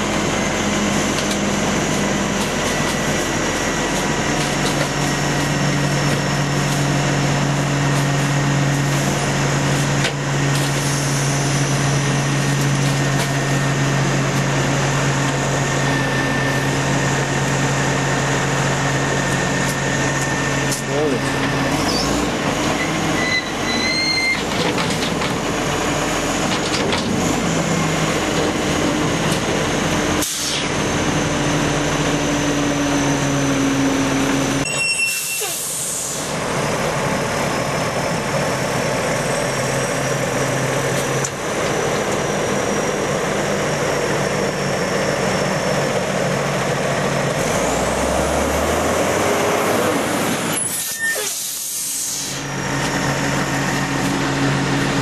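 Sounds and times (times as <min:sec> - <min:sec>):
diesel engine running: 0:00.0 - 0:55.0
hydraulic whine: 0:00.0 - 0:55.0
air brake hisses: 0:30.2 - 0:30.7, 0:35.1 - 0:36.3, 0:50.6 - 0:52.5.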